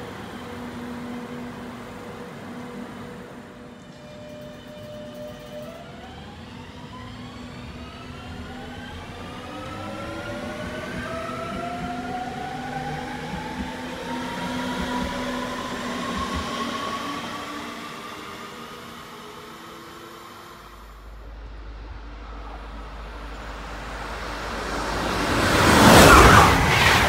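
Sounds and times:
electric train motor whine: 0:00.0 - 0:26.8
low hum: 0:19.2 - 0:27.0.

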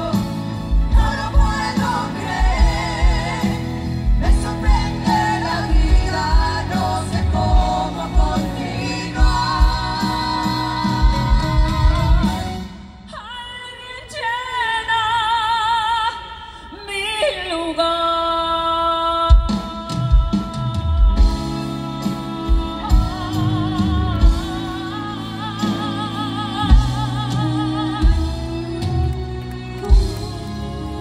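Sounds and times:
band playing: 0:00.0 - 0:13.1, 0:19.3 - 0:31.0
drums: 0:00.0 - 0:31.0
women singing with vibrato: 0:00.0 - 0:31.0.

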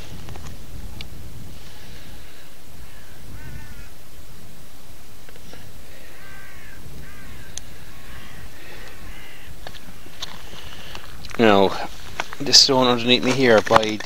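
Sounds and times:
steady low background noise: 0:00.0 - 0:14.0
crows cawing: 0:01.7 - 0:04.2, 0:05.5 - 0:12.6.

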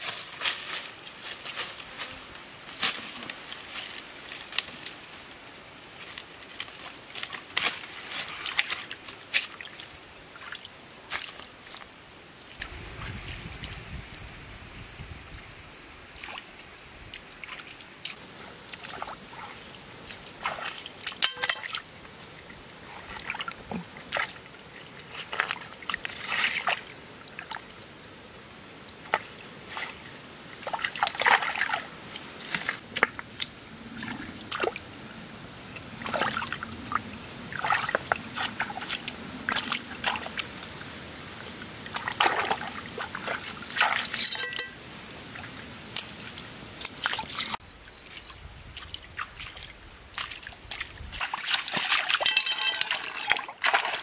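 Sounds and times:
trickle of running water: 0:35.7 - 0:54.0.

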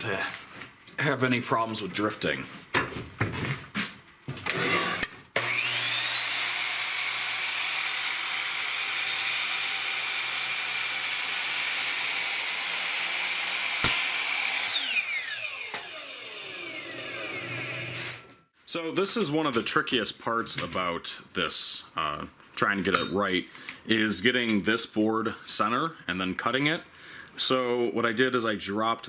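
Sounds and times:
miter saw cutting wood: 0:04.5 - 0:18.4.

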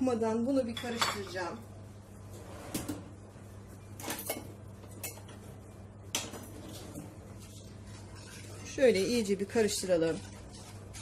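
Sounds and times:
whisk stirring in a pot: 0:07.3 - 0:11.0.

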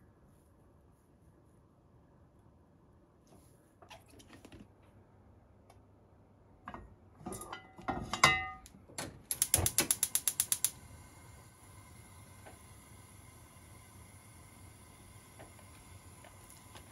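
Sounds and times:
gas stove igniter clicking: 0:09.0 - 0:16.9
gas burner hissing: 0:09.3 - 0:16.9.

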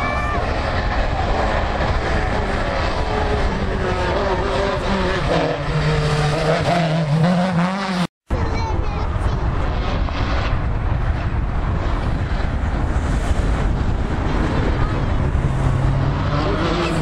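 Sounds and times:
rally car engine high revs: 0:00.4 - 0:08.1, 0:14.4 - 0:17.0.

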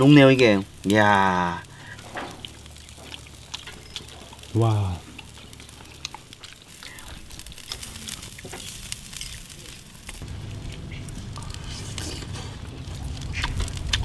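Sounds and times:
charcoal grill crackling: 0:00.0 - 0:14.0
close-up chewing: 0:01.5 - 0:14.0
low wind rumble on microphone: 0:10.0 - 0:14.0.

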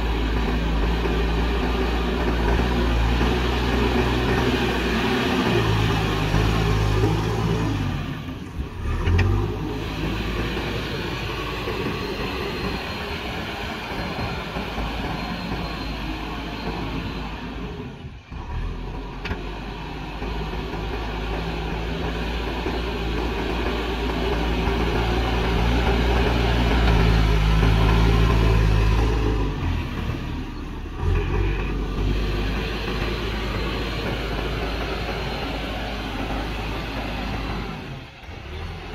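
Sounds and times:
diesel engine under load: 0:00.0 - 0:38.9.

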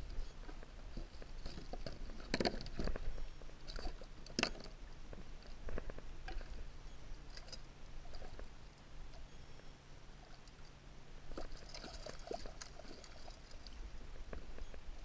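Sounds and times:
fish splashing in a net: 0:11.3 - 0:13.7.

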